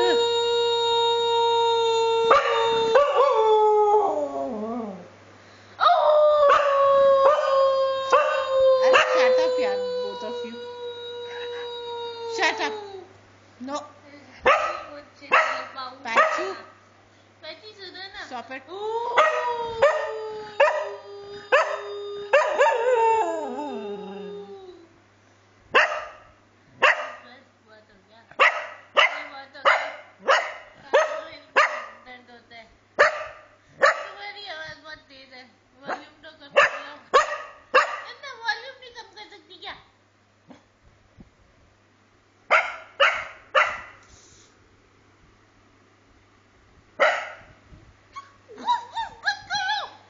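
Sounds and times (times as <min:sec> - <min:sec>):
dog howling: 0:00.0 - 0:05.1, 0:05.8 - 0:13.1, 0:18.8 - 0:24.9
person howling: 0:00.0 - 0:05.1, 0:05.8 - 0:13.1, 0:18.7 - 0:25.0
dog barking: 0:14.4 - 0:16.7, 0:22.4 - 0:22.8, 0:25.7 - 0:27.3, 0:28.4 - 0:32.0, 0:33.0 - 0:34.2, 0:35.9 - 0:38.2, 0:42.5 - 0:44.0, 0:47.0 - 0:47.6.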